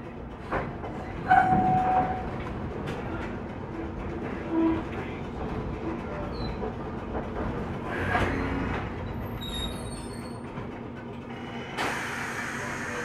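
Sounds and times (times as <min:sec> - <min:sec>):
streetcar wheels rumbling on rails: 0:00.0 - 0:13.0
faint high wheel squeals: 0:09.3 - 0:10.5.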